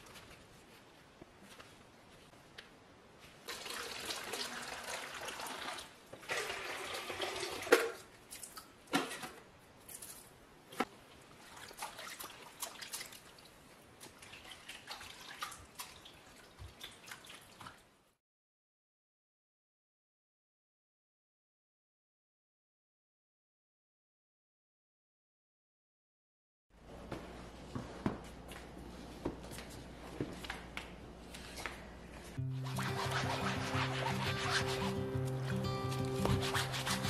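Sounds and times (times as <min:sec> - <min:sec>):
water pouring into plastic tub: 0:03.5 - 0:08.0
water splashing and dripping: 0:11.4 - 0:17.9.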